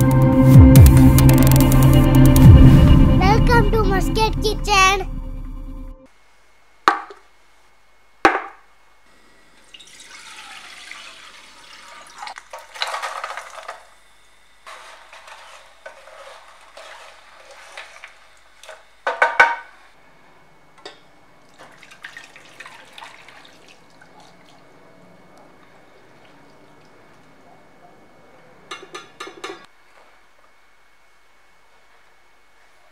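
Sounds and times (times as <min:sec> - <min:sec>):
syrup pouring through strainer: 0:09.7 - 0:13.0
spatula stirring in metal pot: 0:14.7 - 0:18.3.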